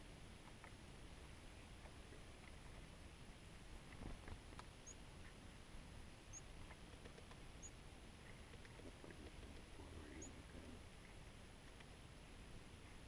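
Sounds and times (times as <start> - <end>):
low wind rumble: 0.0 - 13.0
soft ticks: 6.6 - 10.3.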